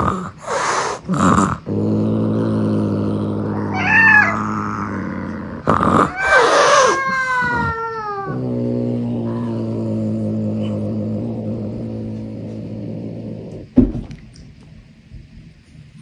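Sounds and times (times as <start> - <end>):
cat hissing: 0.0 - 1.7, 2.3 - 13.7
low steady hum: 0.0 - 16.0
cat meowing: 3.6 - 5.0, 5.9 - 8.4.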